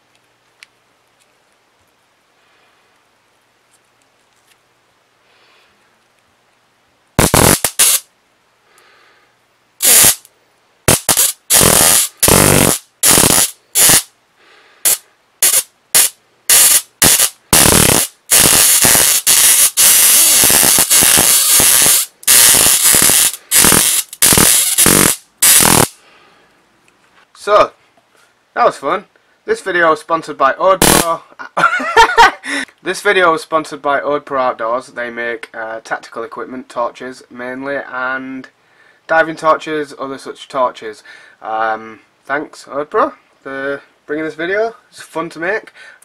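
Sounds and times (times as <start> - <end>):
electric arcing: 7.2 - 8.1, 9.8 - 10.3, 10.9 - 14.1, 14.8 - 26.0, 30.8 - 31.2.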